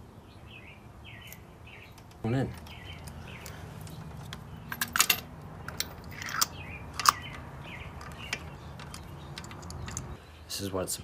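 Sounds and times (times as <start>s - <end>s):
metal socket tools clicking: 4.2s - 10.2s.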